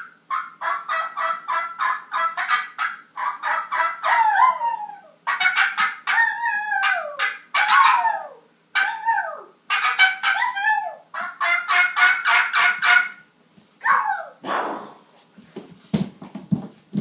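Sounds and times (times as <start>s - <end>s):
children imitating turkey gobbles: 13.8s - 14.8s.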